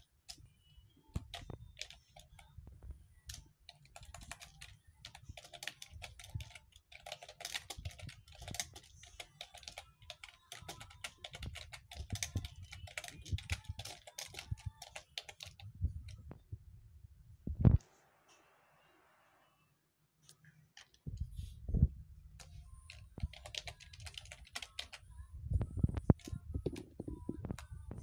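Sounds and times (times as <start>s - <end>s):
computer keyboard typing: 1.1s - 2.5s, 3.3s - 16.2s, 22.4s - 25.0s.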